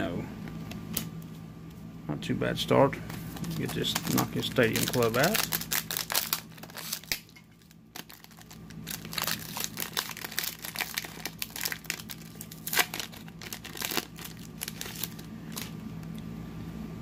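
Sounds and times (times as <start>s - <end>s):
steady low hum: 0.0s - 17.0s
card pack wrapper crinkling: 3.1s - 15.9s.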